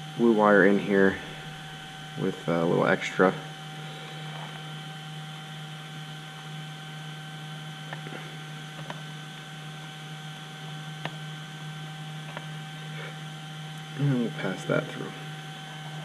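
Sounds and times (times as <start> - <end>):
electrical hum and hiss: 0.0 - 16.0
faint clicks of wires pressed: 8.8 - 9.0, 11.0 - 11.2, 12.2 - 12.5.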